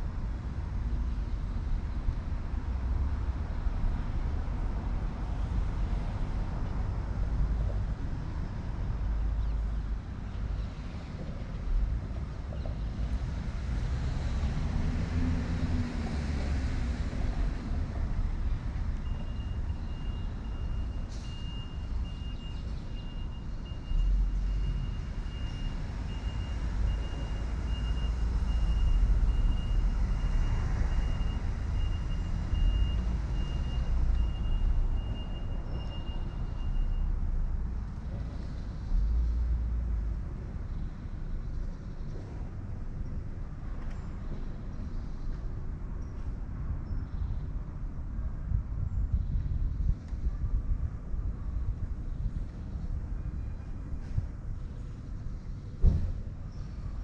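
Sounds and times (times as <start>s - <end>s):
low rumble of city vehicles: 0.0s - 57.0s
vehicle reversing alarm beeping: 19.0s - 37.2s.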